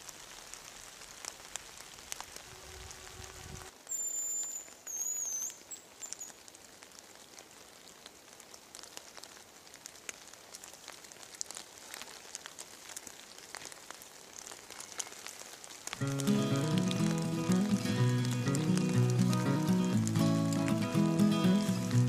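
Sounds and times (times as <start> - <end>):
raindrops pattering on leaves: 0.0 - 22.0
soft hiss: 0.0 - 22.0
high thin whistle: 3.9 - 5.6.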